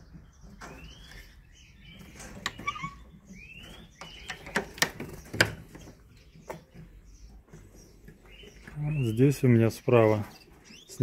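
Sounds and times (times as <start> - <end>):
canaries chirping: 0.0 - 11.0
sharp clicks and knocks: 3.7 - 8.7.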